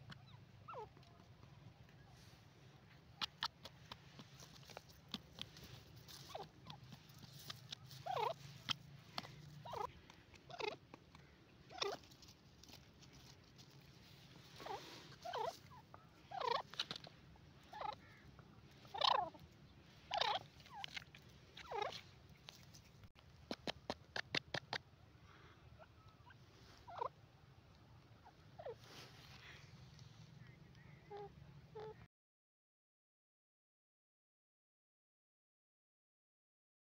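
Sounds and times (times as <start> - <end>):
francolin calling: 6.0 - 12.1, 14.6 - 16.8, 17.6 - 21.0.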